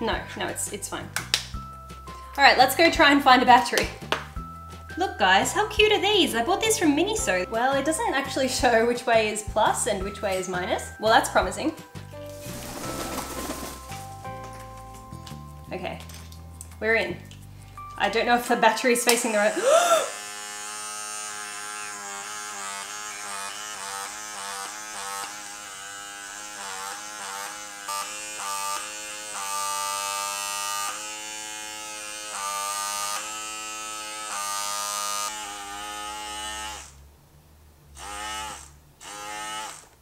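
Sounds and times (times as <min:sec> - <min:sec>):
small pore vacuum buzzing: 0:19.1 - 0:37.0, 0:38.0 - 0:40.0.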